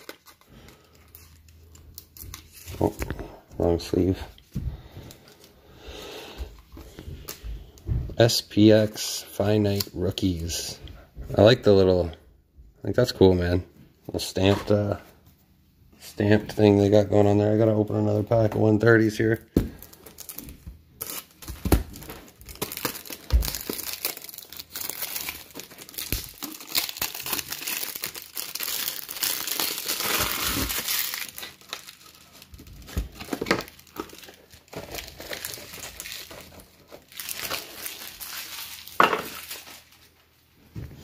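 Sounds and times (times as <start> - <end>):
plastic wrapper crinkling: 0.0 - 3.2, 19.7 - 40.4.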